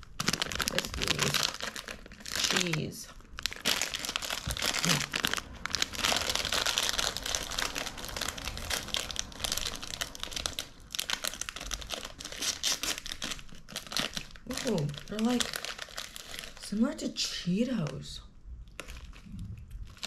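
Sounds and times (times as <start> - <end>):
plastic snack bag crinkling: 0.0 - 18.1, 18.7 - 20.0.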